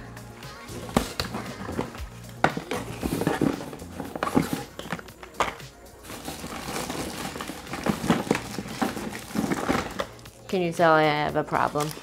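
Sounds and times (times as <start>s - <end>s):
film canisters rattling in cardboard box: 0.7s - 10.2s.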